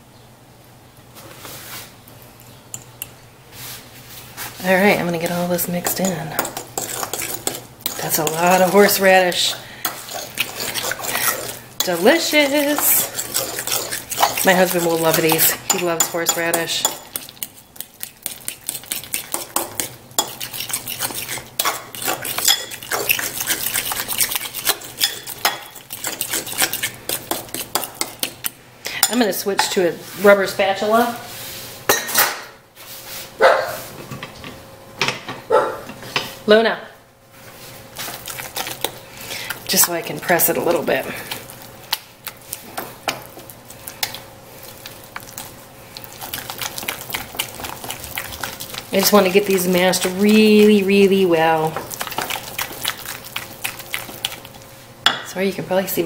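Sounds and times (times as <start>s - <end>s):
utensil mashing in ceramic bowl: 4.7s - 29.8s, 38.0s - 54.6s.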